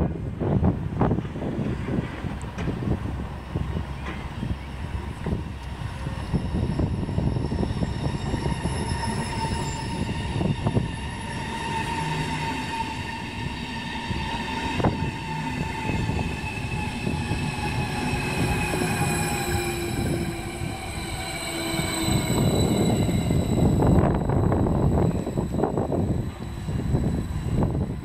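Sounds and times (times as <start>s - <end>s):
train wheels rumbling on rail: 0.0s - 28.0s
high whines and squeals: 4.4s - 28.0s.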